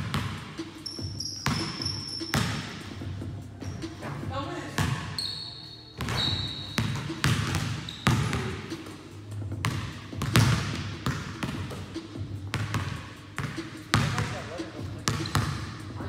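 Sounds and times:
basketballs bouncing on gym floor: 0.0 - 5.2, 6.0 - 8.7, 9.5 - 16.0
high shoe squeak: 0.8 - 2.8, 3.6 - 4.2, 5.0 - 8.5, 15.2 - 15.6.

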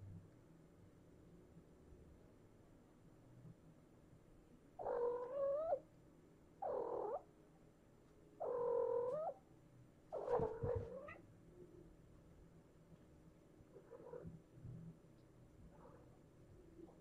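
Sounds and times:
cat meowing: 4.8 - 5.8, 6.6 - 7.3, 8.4 - 9.4, 10.2 - 11.2.

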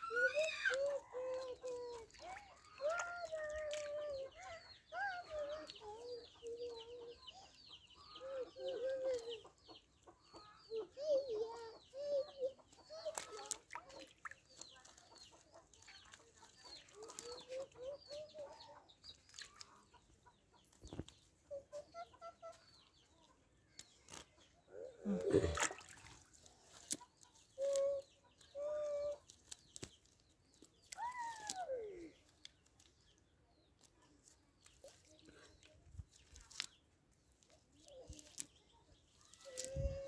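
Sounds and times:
chickens clucking: 0.8 - 35.8
hands rustling a cast net: 25.2 - 31.8.

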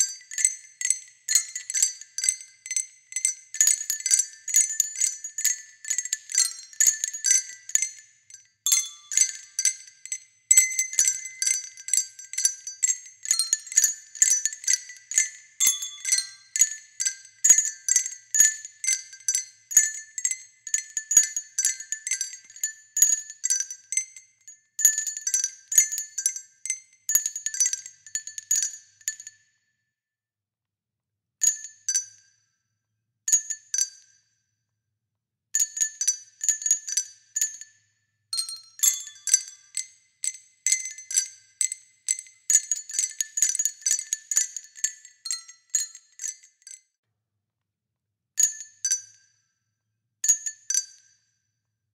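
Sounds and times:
tinkling chime-like music: 0.0 - 29.3, 38.4 - 40.0.

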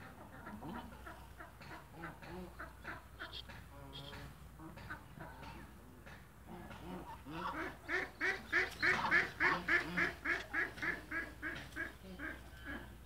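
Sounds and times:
waterfowl calling: 6.7 - 13.0.

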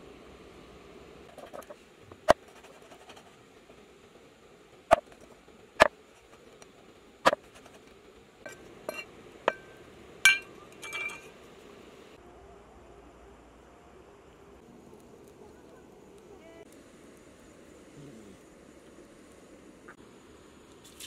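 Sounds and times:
ringing metallic clink: 8.5 - 11.3.

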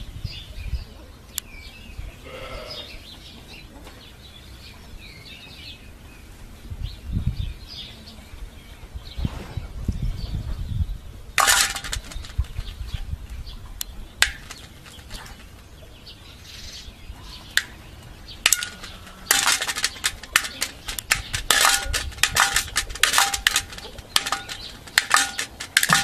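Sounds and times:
beak tapping metal bowl: 11.4 - 12.7, 14.2 - 15.6, 17.6 - 17.8, 18.4 - 26.0.

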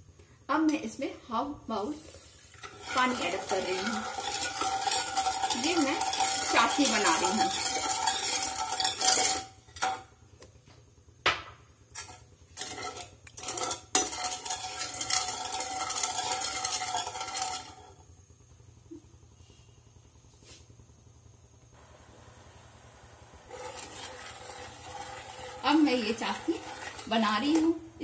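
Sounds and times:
metal ladle scraping pan: 2.5 - 10.0, 12.0 - 17.9, 23.5 - 28.0.

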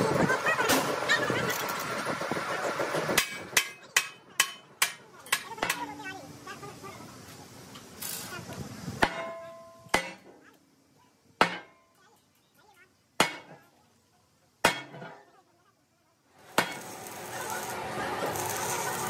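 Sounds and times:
sledgehammer striking steel plate: 9.0 - 10.3, 11.4 - 11.8, 13.2 - 13.6, 14.6 - 15.2, 16.5 - 16.9.

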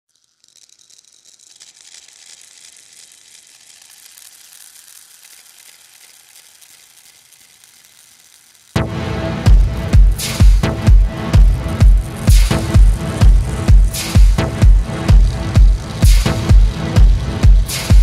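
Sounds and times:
soft crackling hiss: 0.1 - 8.8
techno music with heavy kick drum: 8.8 - 18.0.

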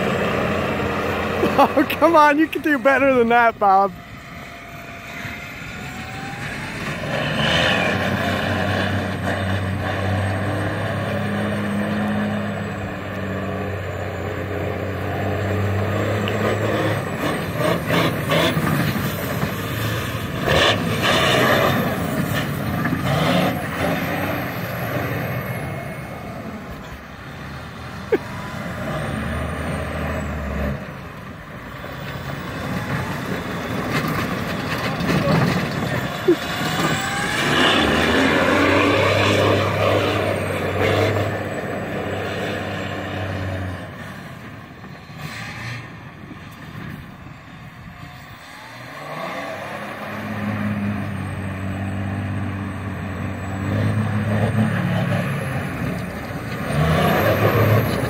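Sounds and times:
diesel truck engine running hard: 0.0 - 58.0
tyres spinning on snow: 31.6 - 42.7, 53.8 - 58.0.

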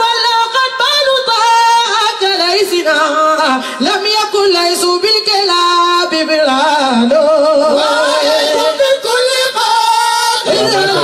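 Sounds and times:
person singing: 7.8 - 11.0.

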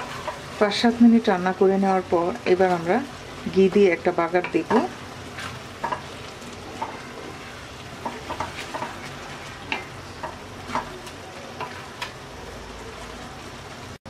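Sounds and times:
wooden spatula scraping a pan: 0.0 - 1.0, 3.5 - 12.2
sizzling pan: 0.0 - 14.0.

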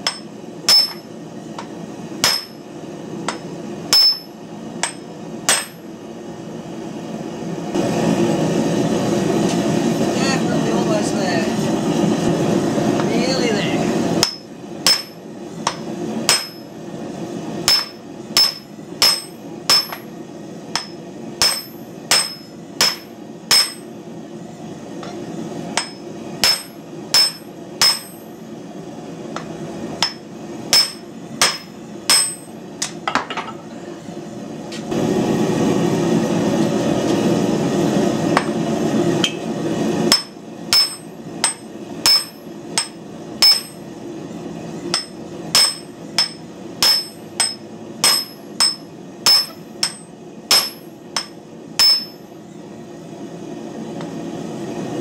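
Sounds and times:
hammer striking hot steel: 0.0 - 5.9, 14.2 - 16.8, 17.6 - 23.9, 25.0 - 28.4, 29.4 - 33.5, 38.3 - 38.6, 39.2 - 43.9, 44.9 - 52.4.

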